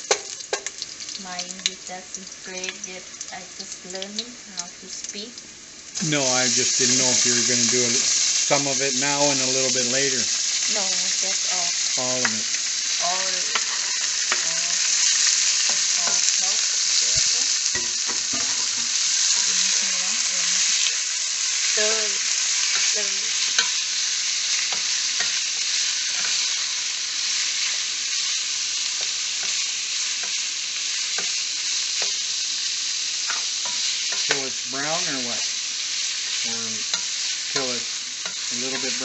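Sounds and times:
meat sizzling in oil: 0:00.0 - 0:39.0
spatula scraping pan: 0:13.4 - 0:21.0, 0:36.3 - 0:39.0.

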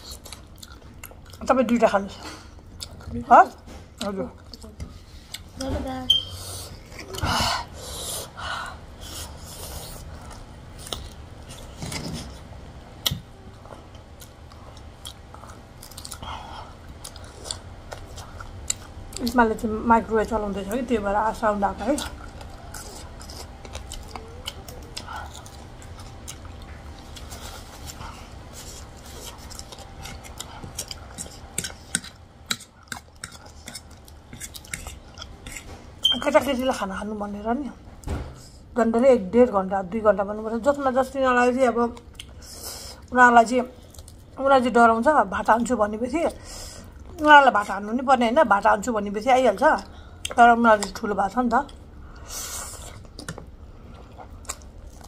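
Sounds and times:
chewing and biting food: 0:00.0 - 0:01.5, 0:02.6 - 0:03.2, 0:09.2 - 0:19.4, 0:21.8 - 0:36.1, 0:43.8 - 0:44.4, 0:51.6 - 0:55.0.

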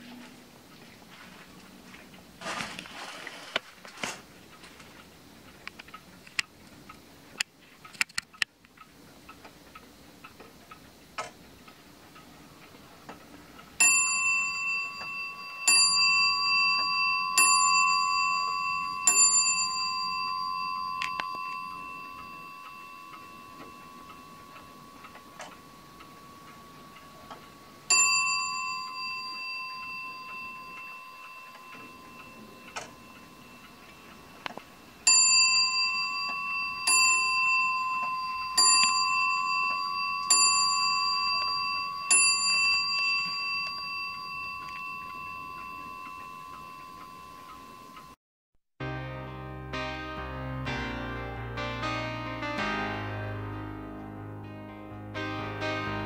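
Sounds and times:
faint clock ticking: 0:04.2 - 0:48.2
wall clock striking bell: 0:13.8 - 0:48.2.

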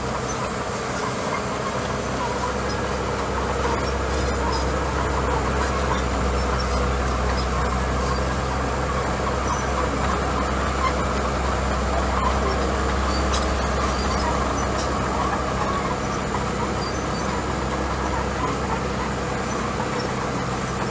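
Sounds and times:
bulldozer diesel engine running: 0:00.0 - 0:20.9.

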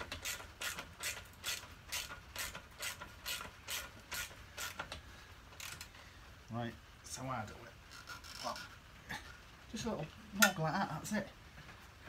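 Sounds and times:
ratchet clicking: 0:00.0 - 0:05.9.

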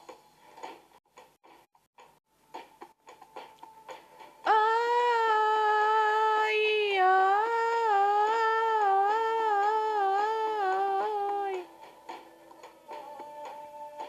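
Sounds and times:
person singing wordless ornamented line: 0:04.4 - 0:11.7.

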